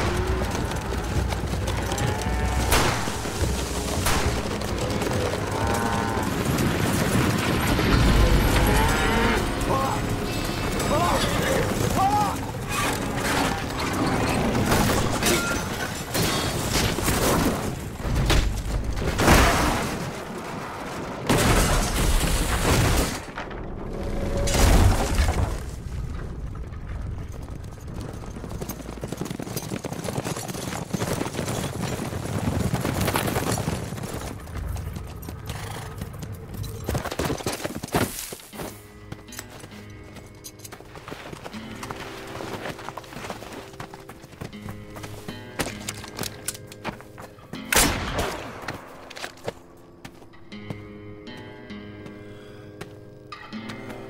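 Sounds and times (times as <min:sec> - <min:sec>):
gunfire: 0:02.7 - 0:03.4, 0:04.0 - 0:04.7, 0:47.7 - 0:48.8.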